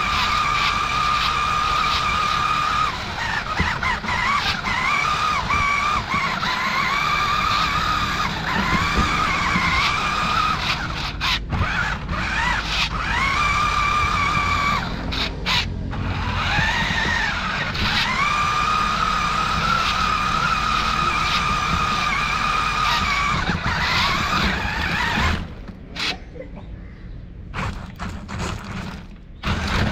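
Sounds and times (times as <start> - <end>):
low rumble of wheels on grass: 0.0 - 25.9
toy truck electric motor whining: 0.0 - 26.2, 27.5 - 29.9.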